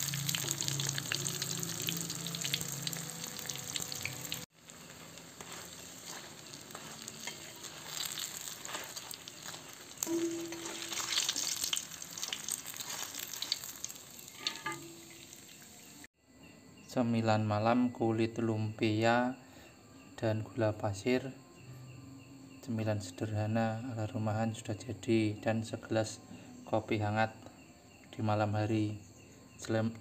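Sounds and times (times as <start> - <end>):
food deep-frying in oil: 0.0 - 16.1
metal spatula turning food: 4.9 - 15.5.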